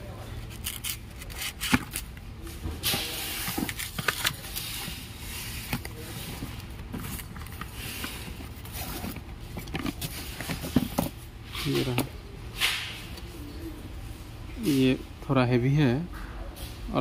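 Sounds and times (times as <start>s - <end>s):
cardboard flaps rustling and scraping: 2.8s - 12.1s.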